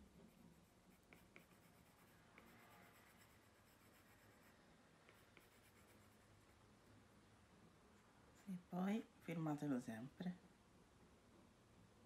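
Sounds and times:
stylus scratching on glass screen: 0.0s - 6.6s.

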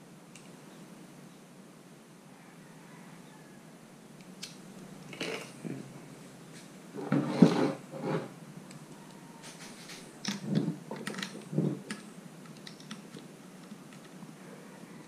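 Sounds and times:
knocks and scrapes on tabletop: 7.0s - 8.3s.

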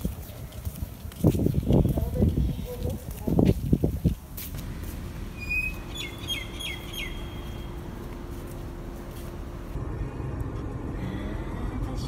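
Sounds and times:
low outdoor hum: 4.0s - 12.0s
small bird chirping: 5.4s - 7.7s.

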